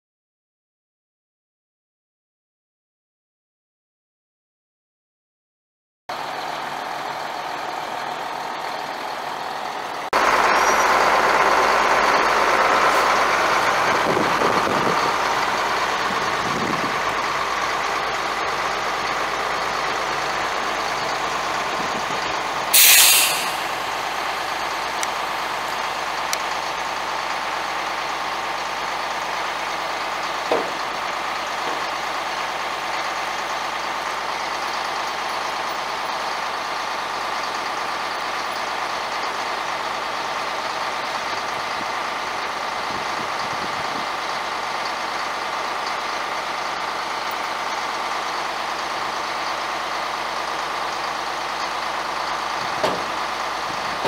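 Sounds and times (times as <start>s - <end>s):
diesel truck engine idling: 6.1s - 54.0s
air brake hiss: 22.7s - 24.4s.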